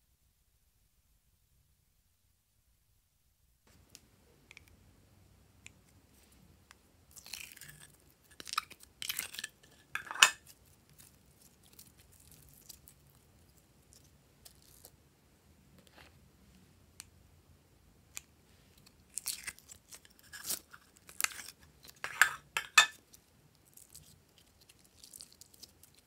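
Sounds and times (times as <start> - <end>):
slime squelching and crackling: 7.1 - 15.0, 23.0 - 26.0.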